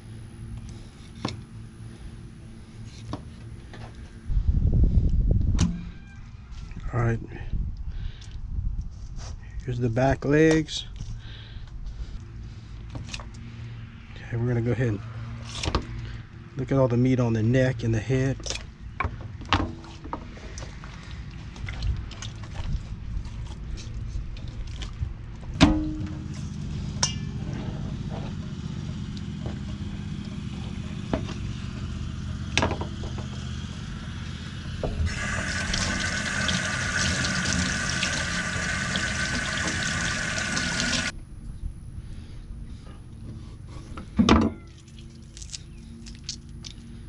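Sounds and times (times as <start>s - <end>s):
running water: 35.1s - 41.1s.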